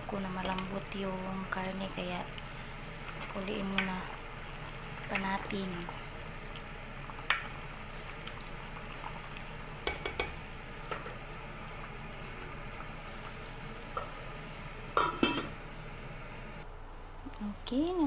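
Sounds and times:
pot of water boiling: 0:00.0 - 0:16.7
utensil knocking against pot: 0:09.8 - 0:11.1
metal lid clattering on pot: 0:15.0 - 0:15.6.

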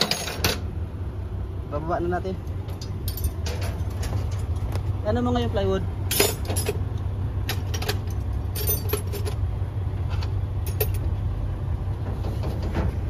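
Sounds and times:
metal tools clinking: 0:00.0 - 0:00.6, 0:02.7 - 0:04.7, 0:06.1 - 0:06.8, 0:07.5 - 0:09.4, 0:10.6 - 0:11.0.

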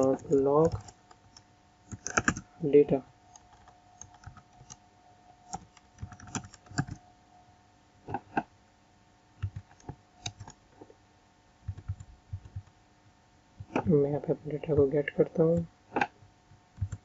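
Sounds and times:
keyboard keystrokes: 0:00.0 - 0:02.5, 0:03.3 - 0:04.8, 0:05.5 - 0:07.0, 0:09.4 - 0:10.6, 0:11.7 - 0:12.7, 0:16.8 - 0:17.0.

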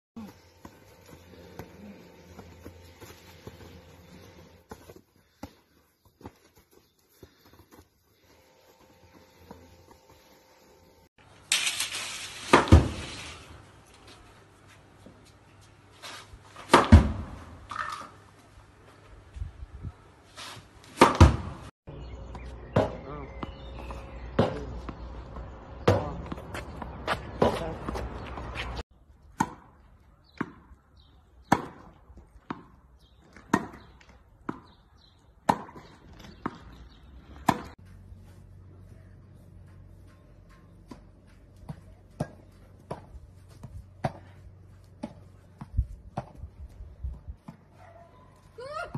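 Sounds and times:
tennis ball struck with rackets: 0:20.9 - 0:21.6, 0:31.4 - 0:32.8, 0:35.4 - 0:36.7, 0:37.4 - 0:37.8.

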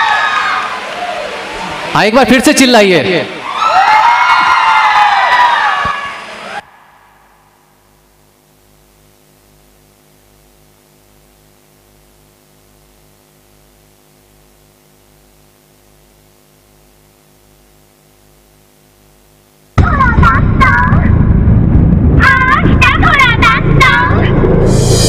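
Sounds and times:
pulsing electrical mains hum: 0:00.0 - 0:25.0
loud music: 0:19.8 - 0:25.0.

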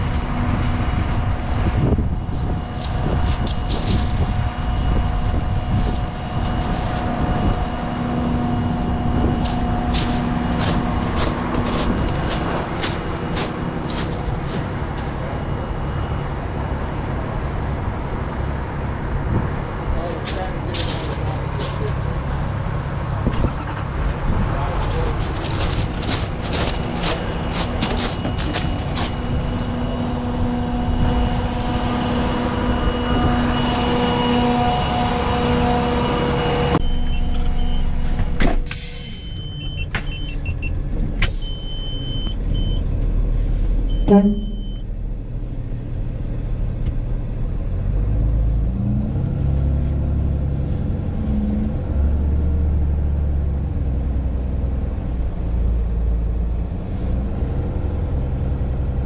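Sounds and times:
short high electronic beeps: 0:43.9 - 0:44.8.

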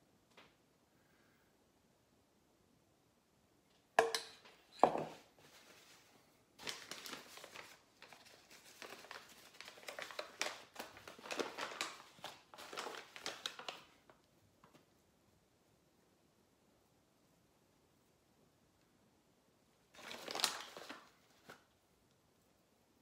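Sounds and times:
paper bag crinkling: 0:05.4 - 0:14.2, 0:19.9 - 0:21.7.

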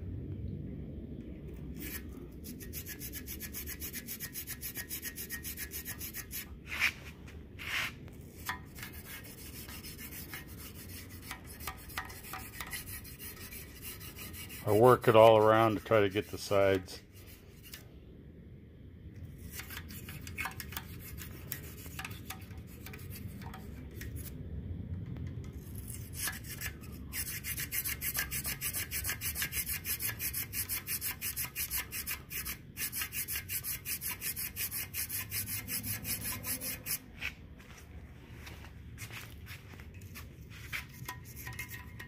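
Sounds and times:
wire brush scrubbing metal: 0:01.8 - 0:07.0, 0:07.6 - 0:17.8, 0:25.7 - 0:37.3, 0:40.0 - 0:42.0.

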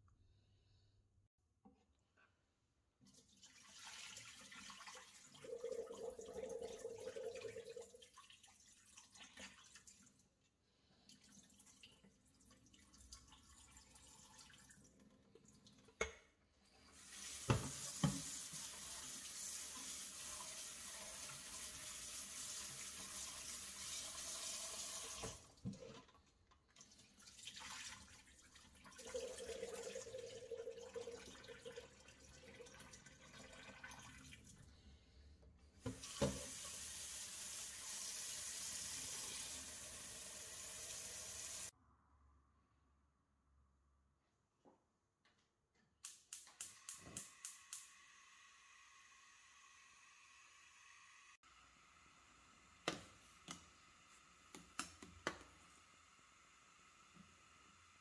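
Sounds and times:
water poured into metal sink: 0:03.1 - 0:10.2, 0:17.0 - 0:34.6
tap running into pot: 0:17.4 - 0:18.3.

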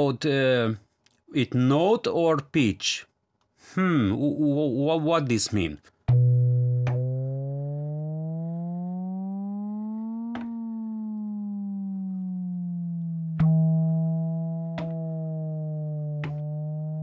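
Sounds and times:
synth tone gliding in pitch: 0:06.1 - 0:17.0.

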